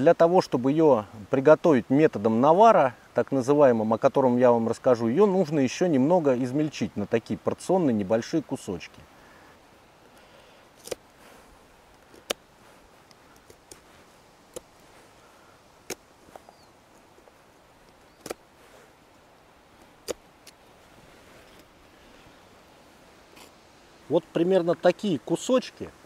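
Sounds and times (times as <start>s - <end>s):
knife cracking through hard fungus: 10.8s - 11.1s, 11.9s - 14.8s, 15.8s - 16.1s, 18.2s - 18.4s, 19.8s - 20.6s.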